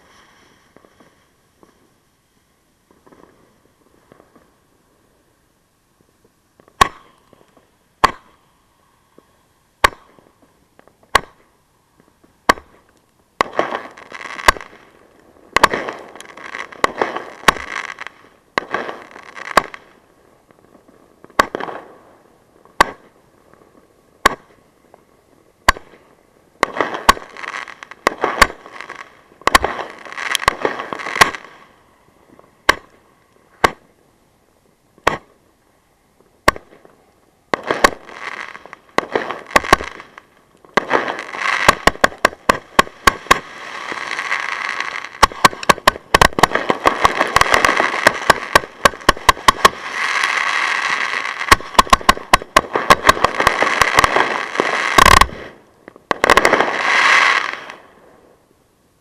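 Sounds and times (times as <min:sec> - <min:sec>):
fireworks crackling: 0:00.0 - 0:35.5, 0:36.1 - 0:58.4
firework launch shots: 0:06.8 - 0:07.2, 0:08.0 - 0:08.4, 0:09.8 - 0:10.3, 0:12.4 - 0:12.8, 0:13.4 - 0:14.9, 0:15.5 - 0:20.0, 0:21.3 - 0:21.9, 0:22.8 - 0:23.2, 0:24.2 - 0:24.6, 0:26.6 - 0:31.7, 0:32.6 - 0:33.0, 0:33.6 - 0:33.8, 0:37.5 - 0:57.9.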